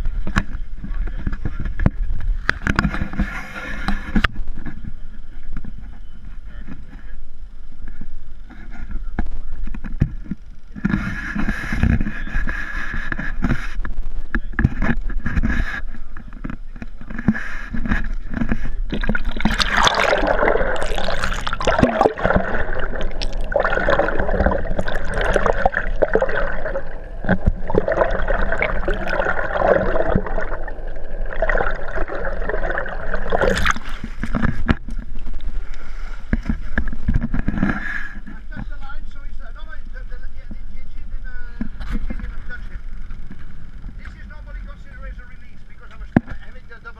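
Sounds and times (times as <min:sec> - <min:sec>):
dense rush of bubbles: 0:18.8 - 0:35.6
water rushing and gurgling: 0:18.9 - 0:35.6.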